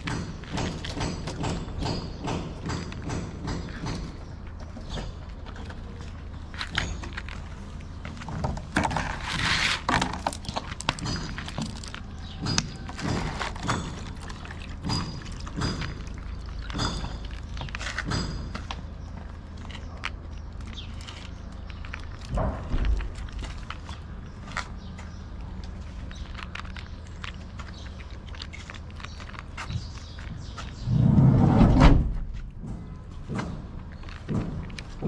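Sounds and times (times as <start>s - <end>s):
cat chewing dry kibble: 10.3s - 17.8s.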